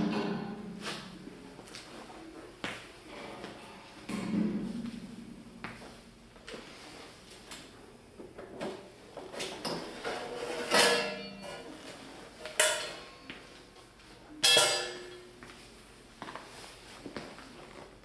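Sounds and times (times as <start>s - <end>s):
sheet metal clanks: 0.0s - 1.2s, 4.0s - 5.7s, 9.4s - 11.7s, 12.4s - 13.2s, 14.4s - 15.3s.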